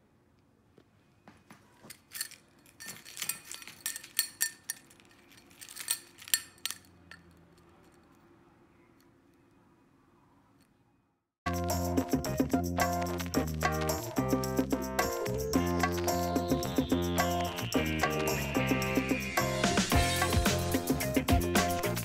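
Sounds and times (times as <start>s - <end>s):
keys jangling on keyring: 1.9s - 8.2s.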